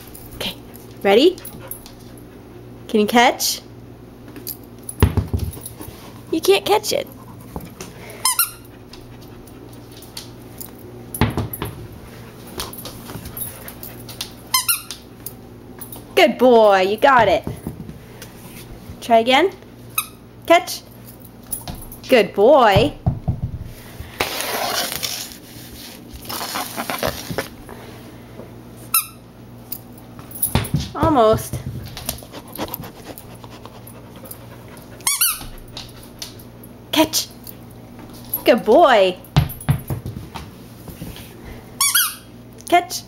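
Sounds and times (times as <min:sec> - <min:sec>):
puppy knocks and thumps on floor: 0:04.9 - 0:05.8, 0:11.2 - 0:11.9, 0:22.7 - 0:23.7, 0:30.3 - 0:33.0, 0:39.4 - 0:40.6
puppy panting: 0:05.6 - 0:09.9, 0:26.4 - 0:27.5, 0:32.0 - 0:36.0
scuffling on wooden floor: 0:24.0 - 0:27.6.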